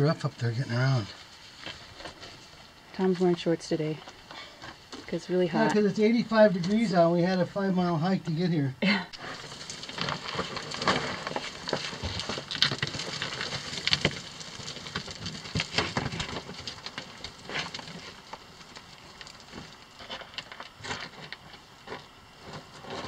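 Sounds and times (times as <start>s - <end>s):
footsteps on loose rock: 9.2s - 23.0s
small stones clattering down: 9.2s - 23.0s.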